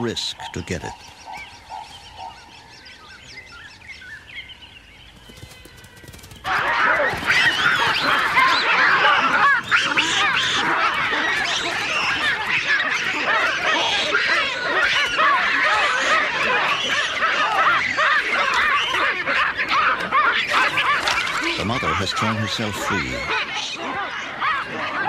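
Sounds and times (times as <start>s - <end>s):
baboons calling: 0.0s - 3.8s, 5.3s - 25.0s.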